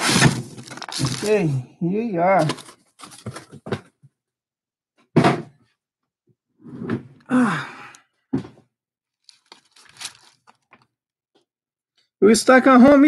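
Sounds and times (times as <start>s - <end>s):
package thumps and handling: 0.0s - 1.4s, 2.4s - 4.0s, 9.3s - 10.9s.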